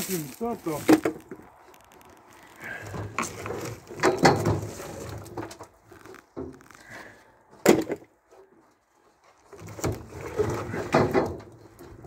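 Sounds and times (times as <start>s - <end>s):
logs thrown down knocking: 7.6s - 8.1s.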